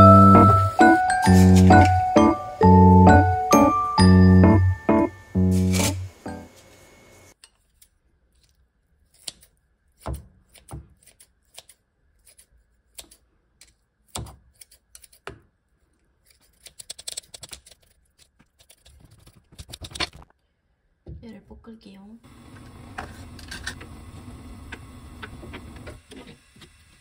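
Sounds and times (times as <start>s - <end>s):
scissors snipping: 7.4s - 15.4s, 16.2s - 19.9s.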